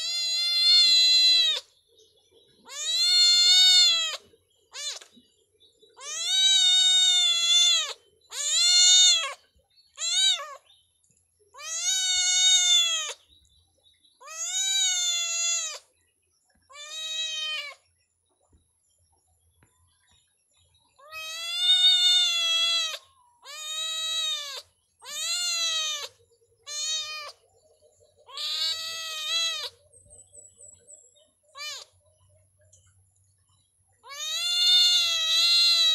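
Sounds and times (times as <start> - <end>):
kitten meowing: 0.0 - 1.7, 2.7 - 5.1, 6.0 - 9.4, 10.0 - 10.6, 11.6 - 13.2, 14.2 - 15.8, 16.7 - 17.8, 21.0 - 27.4, 28.3 - 29.8, 31.6 - 31.9, 34.0 - 35.9.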